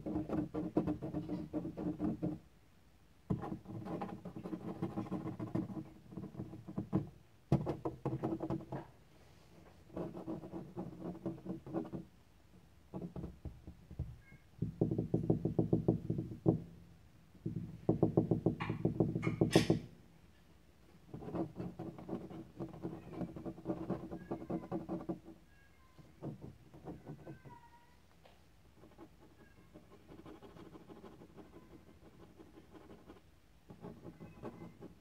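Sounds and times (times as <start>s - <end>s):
kitten making rhythmic rasping: 28.8s - 35.0s.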